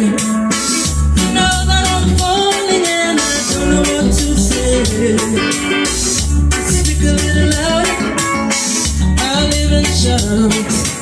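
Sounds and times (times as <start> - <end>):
drum beats: 0.0 - 11.0
guitar: 0.0 - 11.0
heavy bass line: 0.7 - 11.0
woman singing into microphone: 1.2 - 5.8, 6.6 - 8.2, 9.2 - 11.0.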